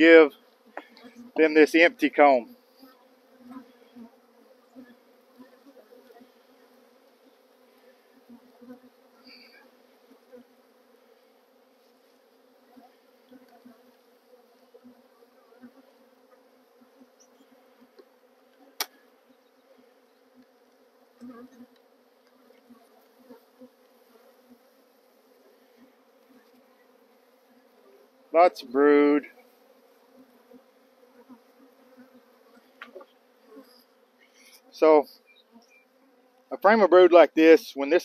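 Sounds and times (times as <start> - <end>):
honeybees humming: 0.0 - 38.0
light knocks on hive: 17.9 - 19.0.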